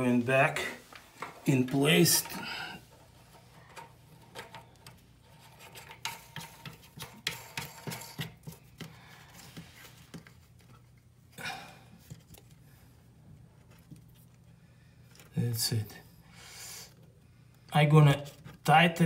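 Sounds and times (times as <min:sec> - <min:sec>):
nut screwing clicks and scrapes: 0:02.2 - 0:08.9.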